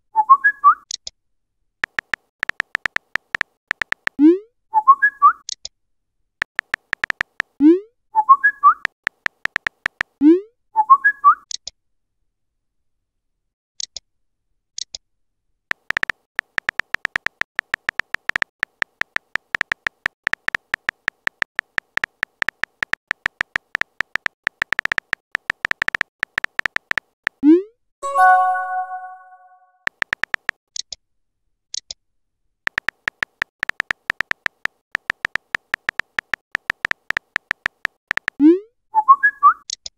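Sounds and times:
smartphone keyboard clicks: 1.8 - 4.2, 6.4 - 7.6, 8.8 - 10.2, 15.7 - 27.4, 29.9 - 31.0, 32.7 - 38.4
rising chat blips: 28.0 - 30.5.

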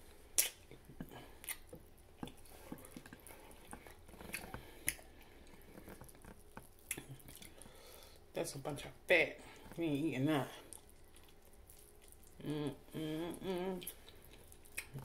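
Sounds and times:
chewing meat with wet smacks: 0.4 - 7.8, 10.6 - 12.5, 13.8 - 15.0.

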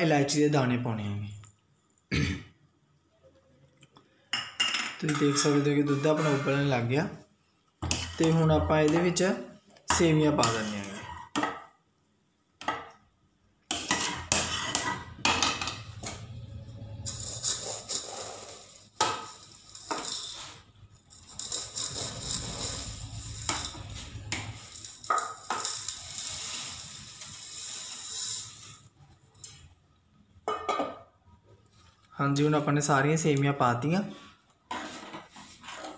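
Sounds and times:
rustling hiss: 21.3 - 28.9.

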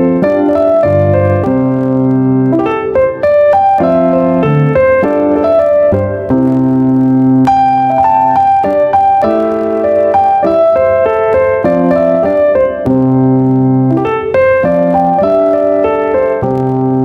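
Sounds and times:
gentle piano music: 0.0 - 17.0.

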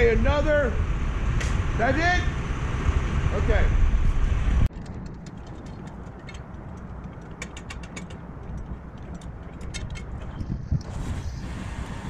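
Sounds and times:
sharp clicks and ticks: 4.6 - 12.0.

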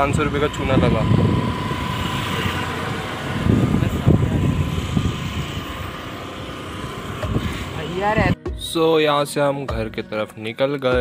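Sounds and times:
motorcycle engine rumble: 0.0 - 8.4
thin steady whine: 0.0 - 8.4.

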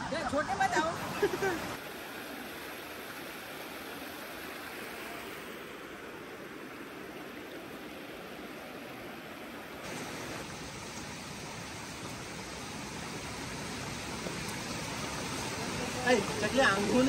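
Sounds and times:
water rushing over rocks: 0.0 - 17.0.

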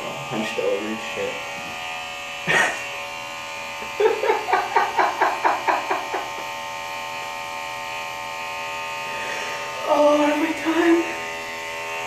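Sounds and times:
electric hair clippers buzzing: 0.0 - 12.0
man laughing: 2.4 - 3.0, 3.8 - 6.5.

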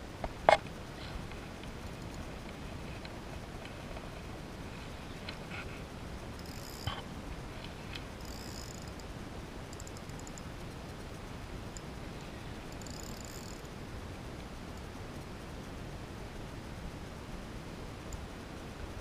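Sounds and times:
spinning reel gears whirring: 6.2 - 13.8.

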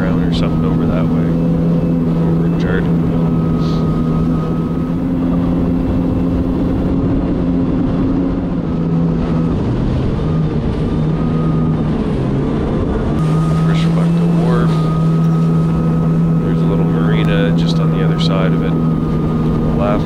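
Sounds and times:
jet ski engine running: 0.0 - 20.0
rush of water and wind: 0.0 - 20.0.

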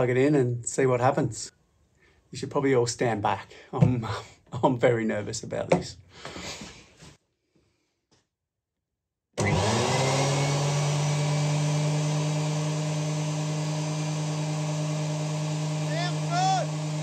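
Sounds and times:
planer motor whine: 9.4 - 17.0.

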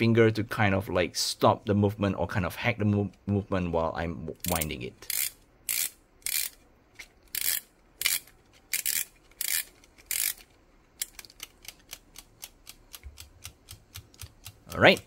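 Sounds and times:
plastic ratchet rasping: 4.4 - 6.6, 7.3 - 15.0.

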